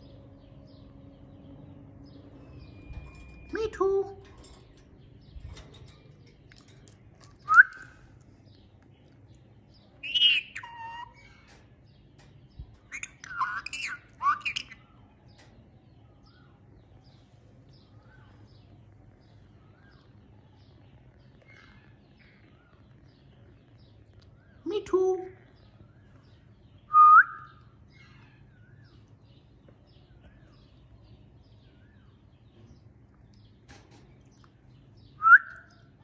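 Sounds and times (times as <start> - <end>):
parakeet calling: 10.0 - 11.5, 12.9 - 14.9.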